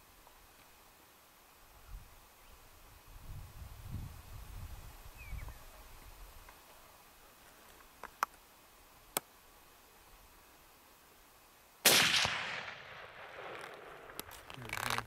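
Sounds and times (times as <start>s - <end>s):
rifle shot echoing: 11.8s - 14.4s.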